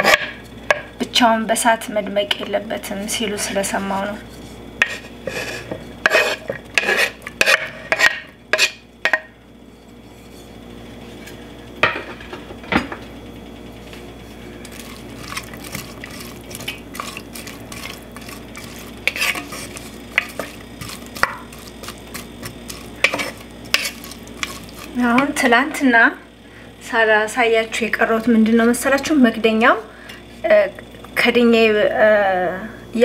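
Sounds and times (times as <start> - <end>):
spoon stirring against pot: 2.3 - 9.3, 14.6 - 25.8
wooden spoon scraping board: 3.4 - 8.8, 14.8 - 25.0
onions frying in oil: 14.3 - 25.8
spoon knocking: 19.1 - 25.3.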